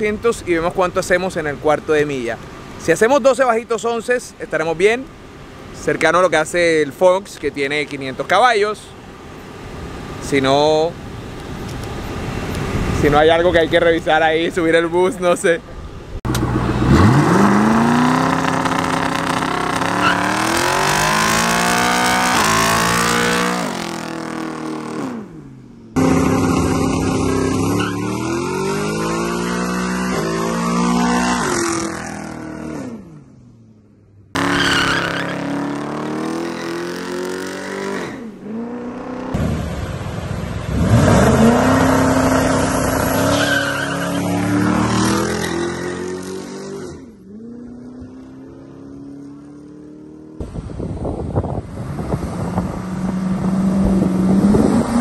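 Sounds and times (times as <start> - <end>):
car engine revving at full throttle: 16.3 - 33.3, 34.3 - 55.0
tyres squealing: 19.5 - 20.7, 34.4 - 35.6, 41.5 - 44.8.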